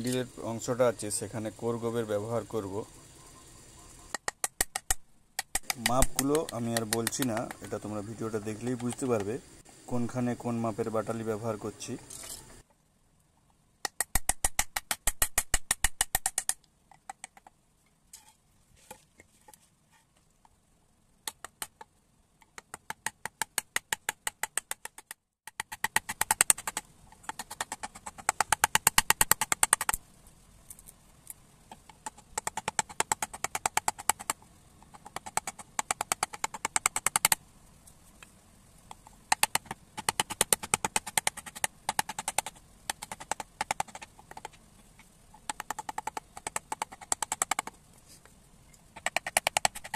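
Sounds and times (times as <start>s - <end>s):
mallet tapping carving gouge: 4.1s - 9.3s, 13.8s - 17.5s, 21.2s - 21.9s, 22.5s - 30.0s, 31.7s - 37.4s, 38.9s - 44.6s, 45.4s - 47.8s, 49.0s - 49.9s.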